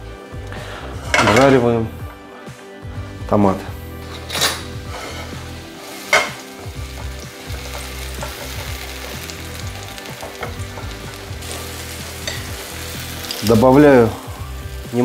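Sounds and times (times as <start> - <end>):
spatula stirring in pan: 4.0 - 13.4
tomatoes sizzling in oil: 4.0 - 15.0.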